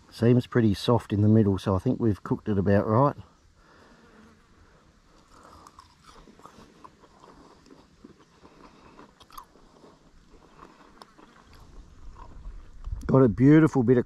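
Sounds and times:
person chewing crunchy food: 0:05.1 - 0:13.1.

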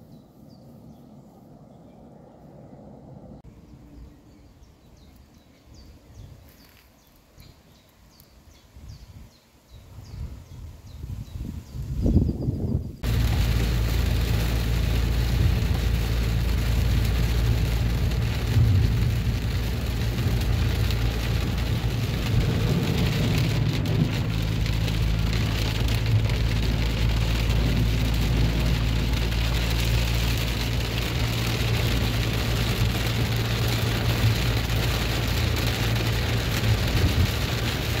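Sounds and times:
engine and tyre hum: 0:13.0 - 0:38.0
heavy rain on car roof: 0:13.0 - 0:38.0.

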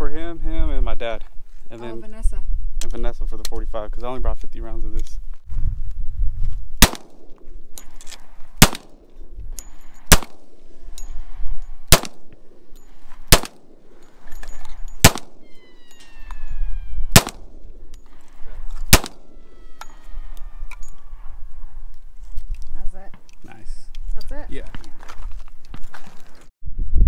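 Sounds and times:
pistol shots: 0:06.8 - 0:07.4, 0:08.6 - 0:09.1, 0:10.1 - 0:10.6, 0:11.9 - 0:12.3, 0:13.3 - 0:13.8, 0:15.0 - 0:15.7, 0:17.0 - 0:17.6, 0:18.9 - 0:19.4
faint ringing tones: 0:09.1 - 0:11.8, 0:12.5 - 0:21.9.

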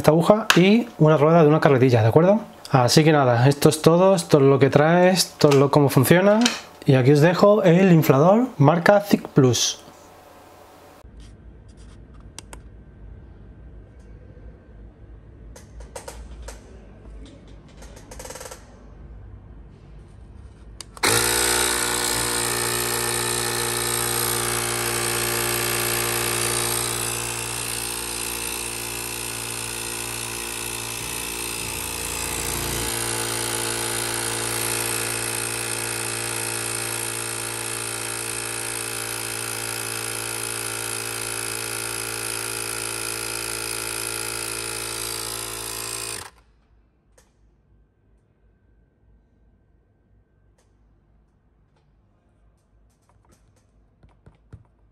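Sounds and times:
electric air inflator humming: 0:20.9 - 0:46.4.

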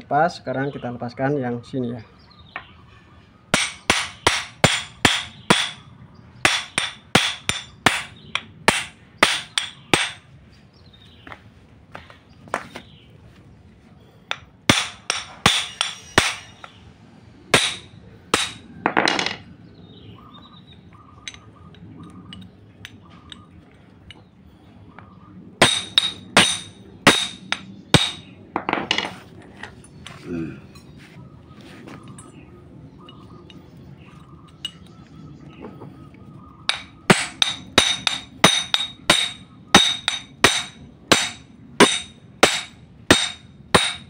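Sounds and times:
hammer striking metal: 0:03.5 - 0:05.8, 0:06.4 - 0:10.3, 0:14.3 - 0:16.8, 0:17.5 - 0:19.4, 0:25.6 - 0:29.1, 0:36.7 - 0:44.0.

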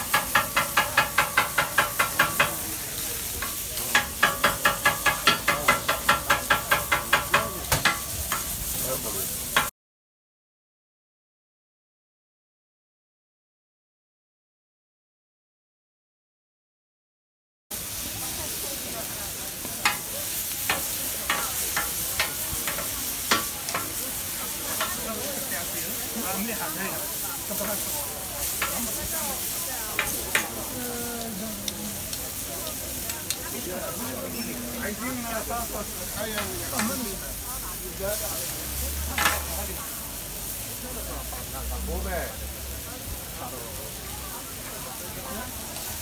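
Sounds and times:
metal blade chopping on griddle: 0:00.0 - 0:02.8, 0:03.4 - 0:08.7, 0:19.8 - 0:20.1, 0:20.7 - 0:24.1, 0:30.0 - 0:30.5, 0:39.2 - 0:39.6
sizzling on griddle: 0:00.0 - 0:09.7, 0:17.7 - 0:46.0
metal tongs and scraper clacking: 0:20.7 - 0:23.9, 0:39.2 - 0:39.5.

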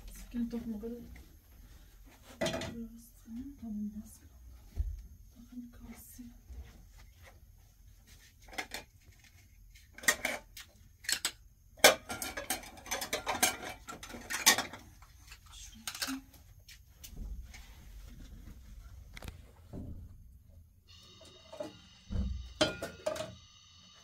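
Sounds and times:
hard objects knocking and clattering: 0:09.9 - 0:16.2.

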